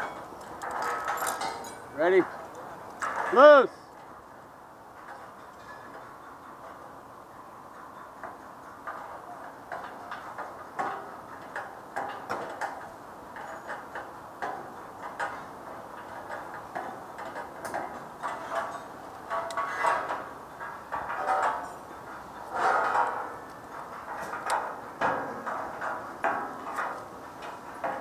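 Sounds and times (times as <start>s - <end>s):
tools striking steel beams: 0.0s - 3.7s, 7.7s - 28.0s.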